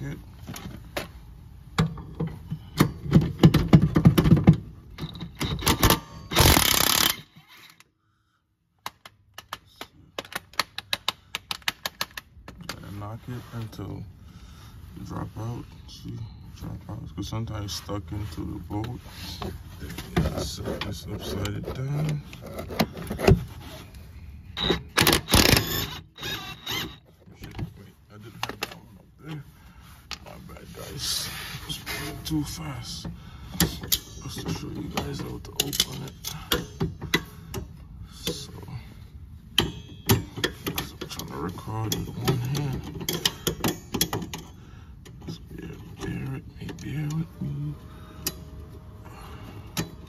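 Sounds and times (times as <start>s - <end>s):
impact wrench hammering: 5.3s - 7.3s, 24.6s - 27.0s, 39.6s - 40.6s.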